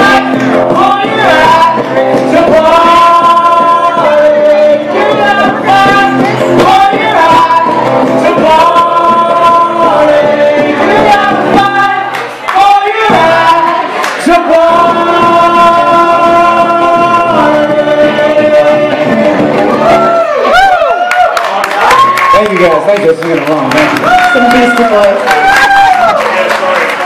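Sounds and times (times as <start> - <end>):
strummed acoustic guitar: 0.0 - 19.8
man singing: 0.0 - 20.0
woman singing: 0.0 - 20.0.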